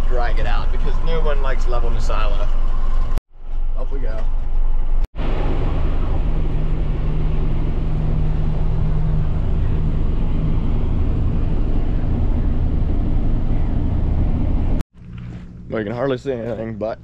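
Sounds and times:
tractor engine running under load: 5.2s - 15.1s
silo blower running: 5.2s - 16.6s.

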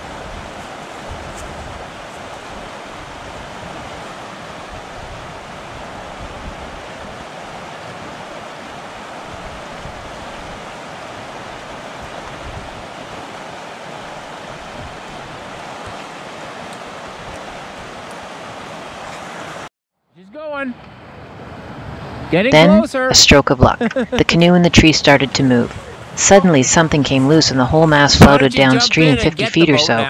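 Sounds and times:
river rushing: 0.0s - 19.7s, 20.7s - 30.0s.

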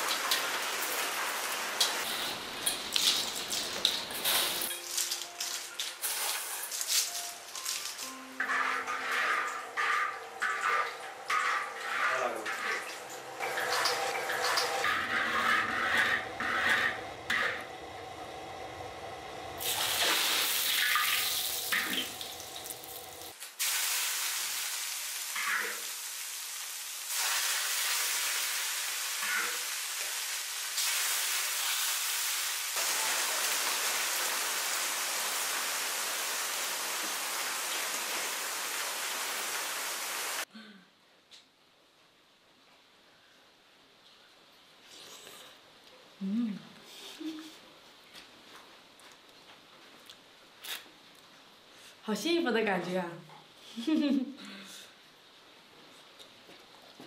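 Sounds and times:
hot oil sizzling: 0.0s - 4.8s, 18.9s - 40.5s
metal ladle scraping in wok: 8.4s - 13.0s.

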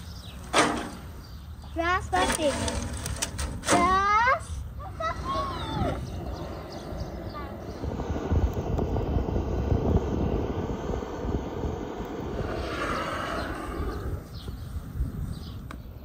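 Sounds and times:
gas torch roaring: 4.5s - 16.0s.

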